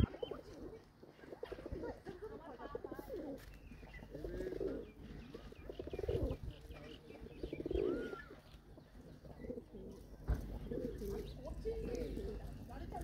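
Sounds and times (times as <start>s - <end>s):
pigeons cooing: 0.0s - 13.0s.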